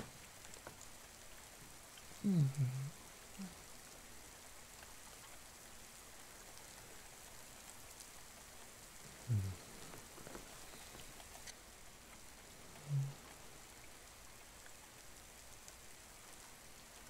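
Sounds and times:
steady rain falling: 0.0s - 17.0s
man's low hum: 2.2s - 3.6s, 9.1s - 9.9s, 12.8s - 13.2s.

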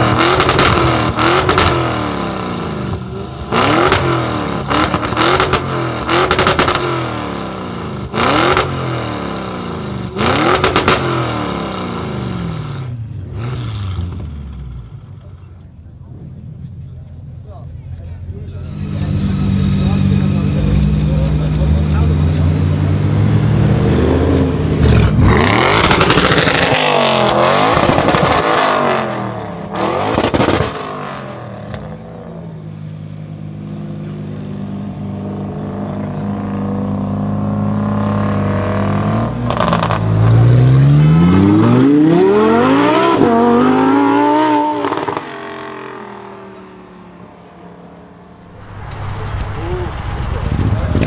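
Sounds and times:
car engine revving: 0.0s - 15.1s, 18.5s - 51.0s
exhaust pops and crackles: 48.5s - 51.0s.

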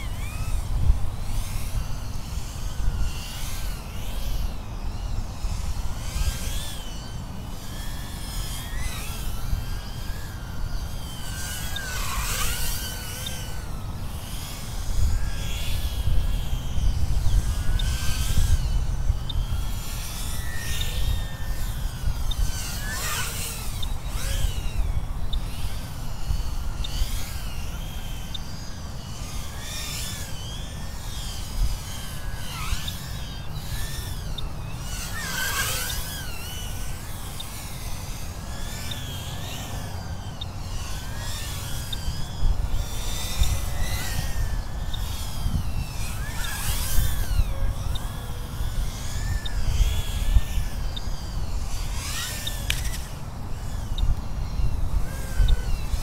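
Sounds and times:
rushing wind noise: 0.0s - 6.6s, 14.4s - 27.7s, 42.3s - 56.0s
drone motors whining: 0.0s - 56.0s.

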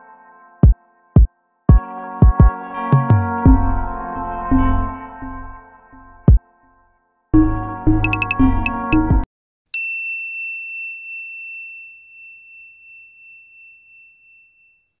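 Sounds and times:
music with a beat: 0.6s - 3.7s, 8.0s - 9.2s
high bell-like ding: 9.8s - 15.0s.

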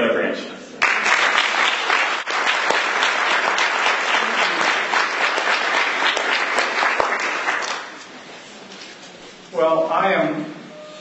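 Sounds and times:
audience applauding: 0.8s - 8.1s.

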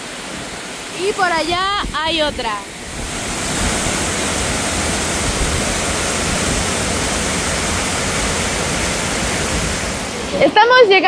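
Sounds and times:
waterfall roaring: 0.0s - 11.0s.

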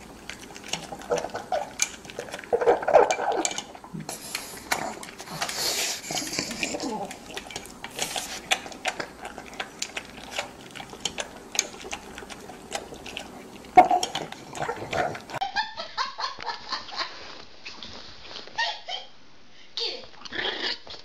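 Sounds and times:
dog crunching kibble in metal bowl: 0.0s - 15.4s.

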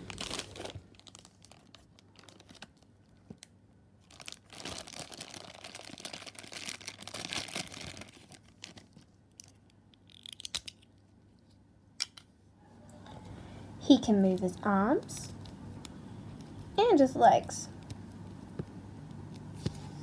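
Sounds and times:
plastic bag crinkling and tearing: 0.0s - 10.9s.

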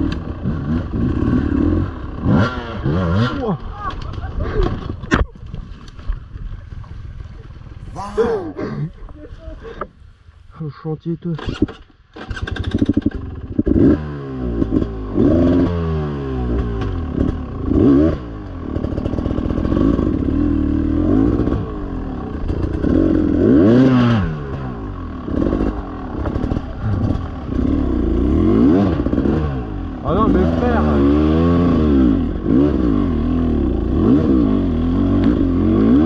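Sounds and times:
dirt bike engine revving: 0.0s - 3.7s, 11.6s - 36.0s.

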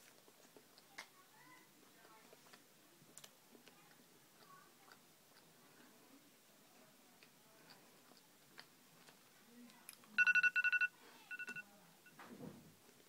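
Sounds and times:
digital timer beeping: 10.2s - 11.6s.

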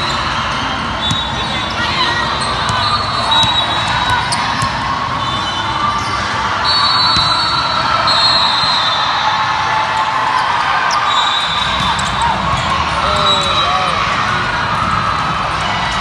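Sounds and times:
volleyballs being hit and bouncing: 0.0s - 5.2s, 7.0s - 7.9s
murmur of crowd voices: 0.0s - 16.0s.

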